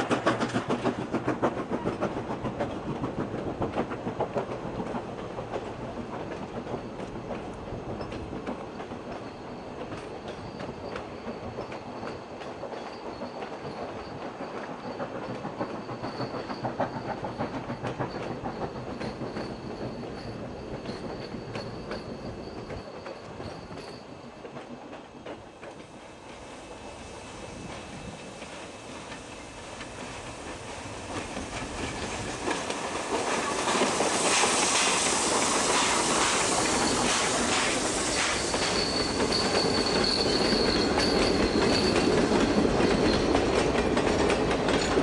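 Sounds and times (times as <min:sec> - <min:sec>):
train wheels clattering over rail joints: 0:00.0 - 0:27.0, 0:27.6 - 0:45.0
high wheel squeal: 0:33.3 - 0:43.5.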